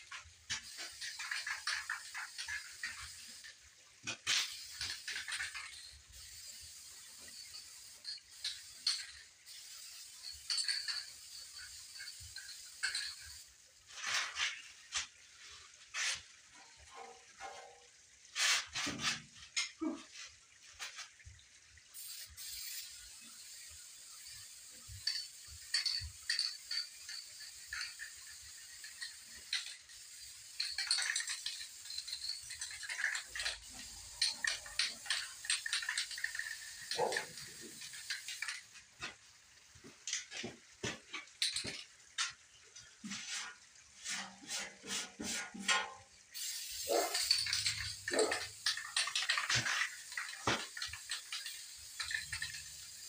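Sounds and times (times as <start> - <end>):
metal parts rattling in a metal box: 24.9 - 38.6, 46.4 - 53.0.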